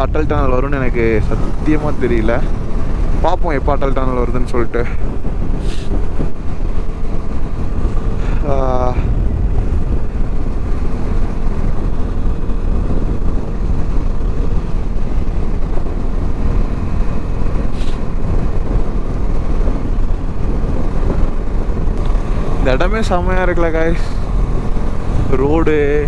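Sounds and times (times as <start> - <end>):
motorcycle engine hum: 0.0 - 26.0
wind rushing over microphone: 0.0 - 26.0
brief hiss: 17.7 - 18.0.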